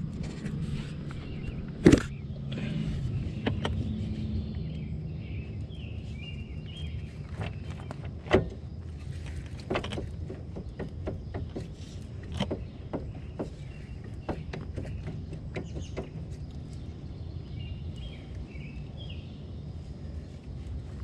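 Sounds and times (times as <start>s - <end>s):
knocks and clicks of wheel hub: 3.4s - 3.8s, 7.3s - 8.7s, 9.4s - 16.8s.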